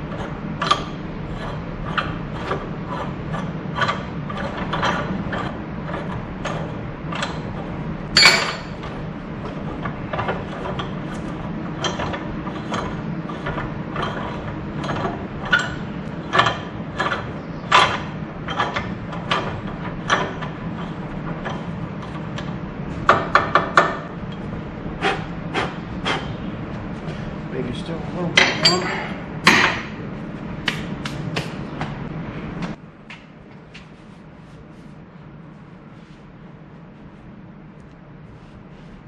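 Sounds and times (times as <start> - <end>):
metal clicking and clanking: 0.1 - 24.5
sharp metal knocks: 8.1 - 8.9, 28.4 - 30.0.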